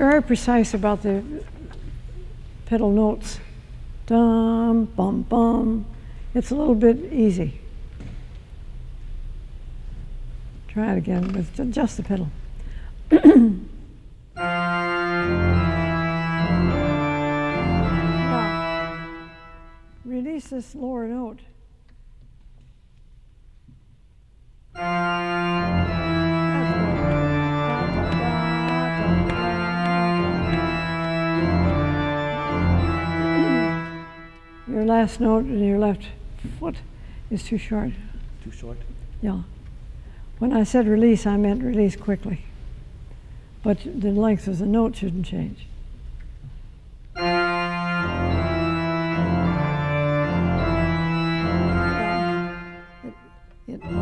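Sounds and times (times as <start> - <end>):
low organ pedal line: 14.4 - 20.1, 24.8 - 35.8, 47.2 - 54.0
organ chords: 14.4 - 20.1, 24.8 - 35.7, 47.2 - 54.0.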